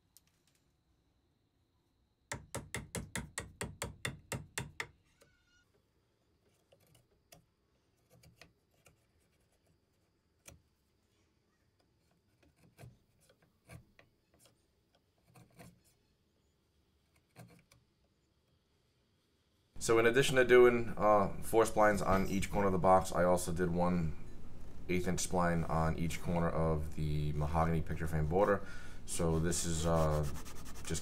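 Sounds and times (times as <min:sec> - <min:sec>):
chisel strikes: 0:02.3 - 0:05.0
chisel paring clicks and scrapes: 0:06.4 - 0:10.6, 0:11.8 - 0:15.9, 0:17.1 - 0:17.9.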